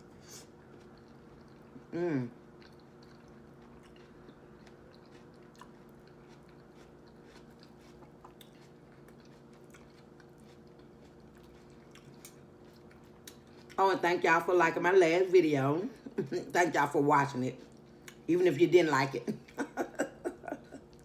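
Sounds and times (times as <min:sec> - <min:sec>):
person chewing food: 0:00.0 - 0:13.8, 0:17.6 - 0:18.3, 0:19.4 - 0:21.0
steady low hum: 0:00.0 - 0:21.0.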